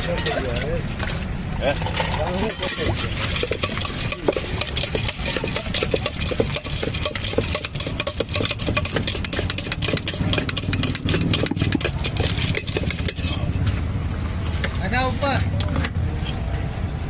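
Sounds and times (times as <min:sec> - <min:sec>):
steel spoon scraping steel bowl: 0:01.8 - 0:13.6.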